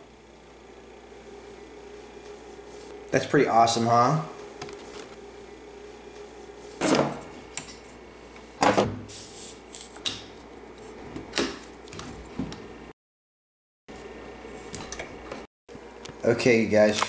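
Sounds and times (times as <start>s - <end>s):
faint steady hum: 0.0s - 8.6s.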